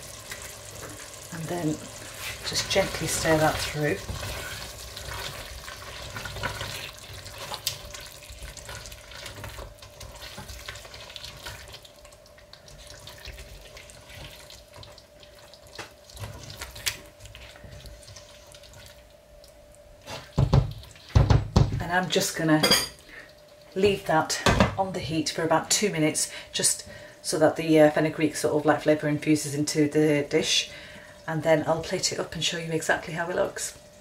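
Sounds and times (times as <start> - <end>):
faint steady hum: 0.0 - 34.0
spatula stirring thick curry: 2.1 - 11.9, 12.7 - 18.4
knocks against a pot: 20.4 - 21.8.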